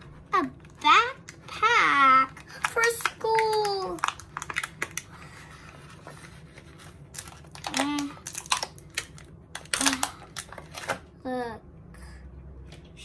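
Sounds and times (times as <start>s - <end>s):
plastic packaging crinkling: 2.2s - 11.0s.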